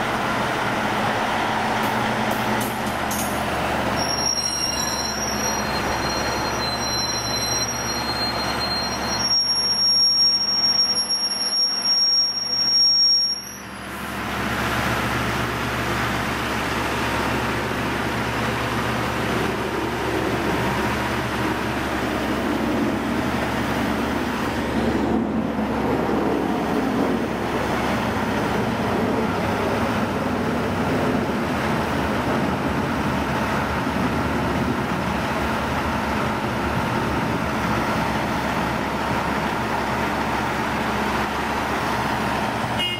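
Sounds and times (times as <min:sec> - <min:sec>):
diesel engine running: 0:00.0 - 0:42.9
steel wheels squealing: 0:03.1 - 0:13.9.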